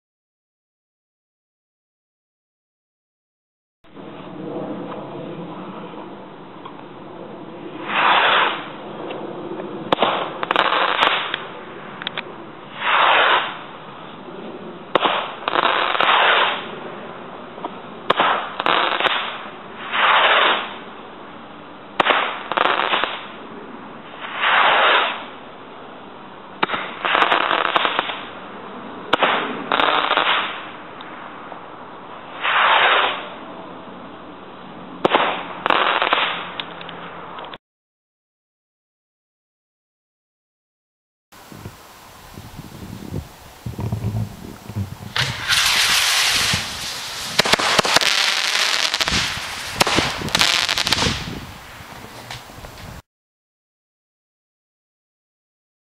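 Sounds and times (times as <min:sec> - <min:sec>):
firework rockets whooshing: 0:07.7 - 0:08.8, 0:09.9 - 0:11.5, 0:12.7 - 0:13.8, 0:14.9 - 0:16.7, 0:18.1 - 0:20.8, 0:22.0 - 0:23.4, 0:24.0 - 0:25.4, 0:26.6 - 0:28.4, 0:29.1 - 0:31.3, 0:32.2 - 0:33.3, 0:35.0 - 0:36.6, 0:41.4 - 0:53.0
firework pops and crackles: 0:07.8 - 0:08.7, 0:09.9 - 0:13.6, 0:14.9 - 0:16.7, 0:18.1 - 0:20.8, 0:22.0 - 0:23.3, 0:24.2 - 0:25.3, 0:26.6 - 0:28.3, 0:29.1 - 0:30.8, 0:32.4 - 0:33.3, 0:35.0 - 0:37.0, 0:43.6 - 0:53.0.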